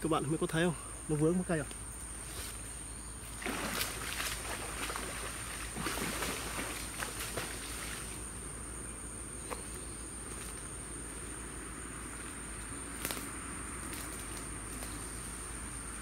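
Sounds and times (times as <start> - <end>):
small splash on water: 3.3 - 8.2.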